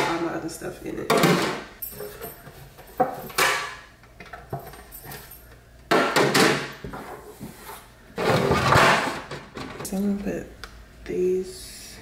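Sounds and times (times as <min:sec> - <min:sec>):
plastic tray scraping clatter: 0:08.2 - 0:09.8.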